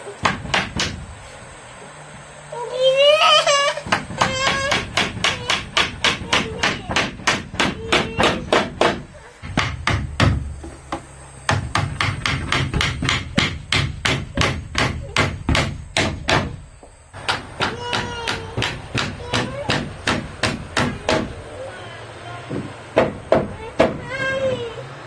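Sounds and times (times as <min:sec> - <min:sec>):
hammer hitting nail into wood: 0:00.2 - 0:01.0, 0:03.9 - 0:16.6, 0:17.2 - 0:21.4.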